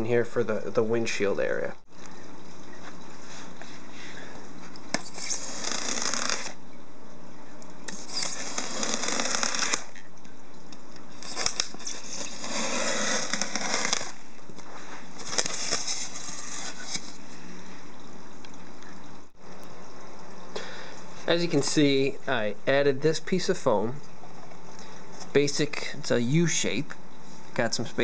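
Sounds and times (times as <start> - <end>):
knife cutting foam board: 11.3 - 14.2.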